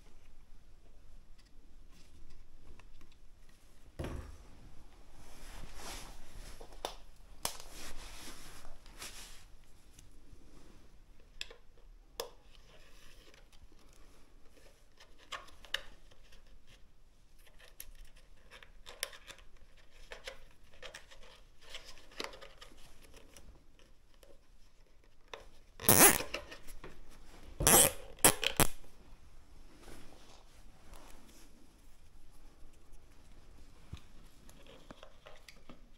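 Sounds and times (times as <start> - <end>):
scraping and rustling of hands: 4.9 - 11.6, 12.5 - 35.9
cable ties zipping: 25.8 - 26.3, 27.6 - 28.8.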